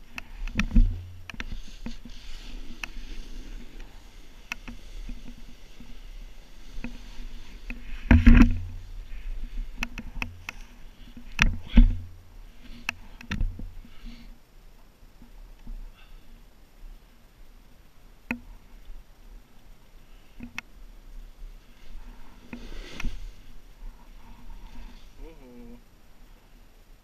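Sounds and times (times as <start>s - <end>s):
snowboard swishing through powder: 1.5s - 8.1s, 21.5s - 25.2s.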